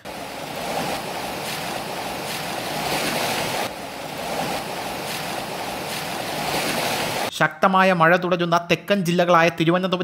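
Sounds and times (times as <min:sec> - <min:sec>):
floodwater rushing: 0:00.0 - 0:07.3.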